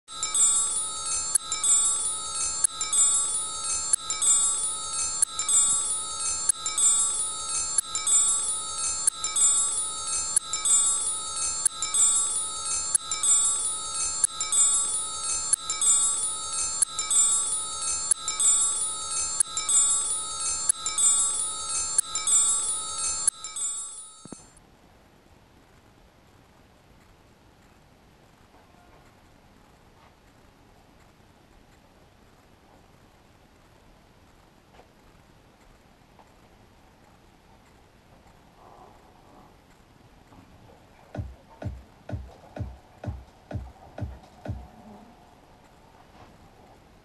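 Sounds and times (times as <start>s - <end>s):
high tinkling chimes: 0.1s - 24.6s.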